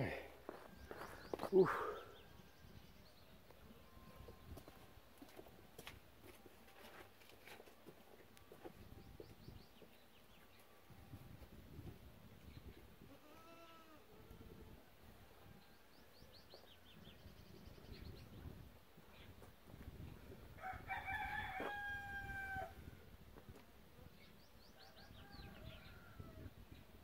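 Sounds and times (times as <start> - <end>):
small birds chirping: 0.0 - 4.9
rooster crowing: 20.6 - 22.8, 24.8 - 26.5.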